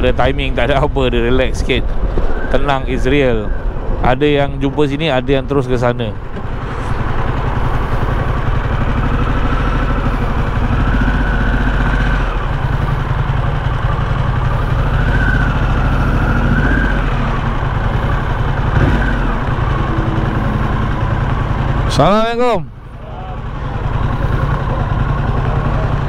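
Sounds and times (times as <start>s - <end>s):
motorcycle engine rumbling: 0.0s - 26.0s.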